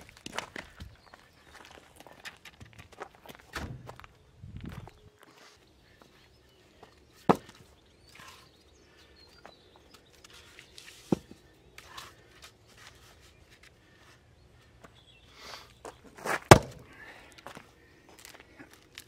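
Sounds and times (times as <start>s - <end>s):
footsteps on gravel: 0.0s - 5.5s, 15.7s - 19.0s
firewood knocking wood on wood: 7.3s - 7.6s, 16.5s - 16.8s.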